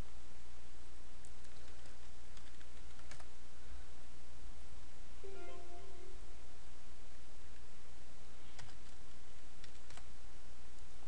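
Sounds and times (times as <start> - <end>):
low hum and hiss: 0.0 - 11.0
keyboard keys clicking: 1.3 - 3.3, 9.6 - 10.0.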